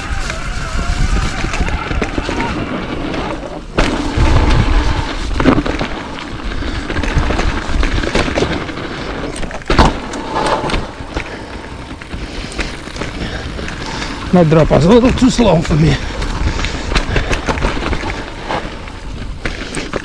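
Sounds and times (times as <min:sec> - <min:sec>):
wind rumble on microphone: 0:00.0 - 0:19.8
bike rattling: 0:00.0 - 0:20.0
bike tyre noise: 0:00.0 - 0:20.0.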